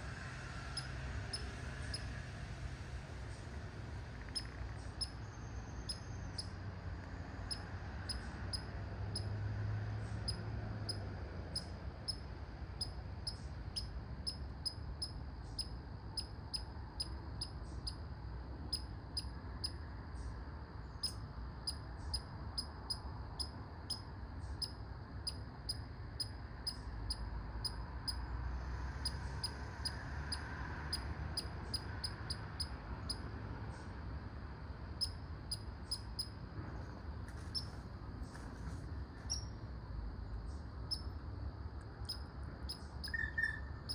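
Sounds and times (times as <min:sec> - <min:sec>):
squirrel barking: 0:42.1 - 0:43.9.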